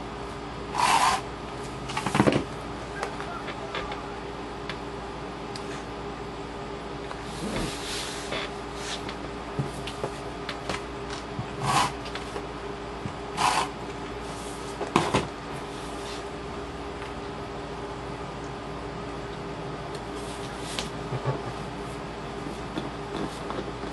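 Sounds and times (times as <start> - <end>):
steady low hum: 0.0 - 23.9
tape runner rasping: 0.7 - 1.3.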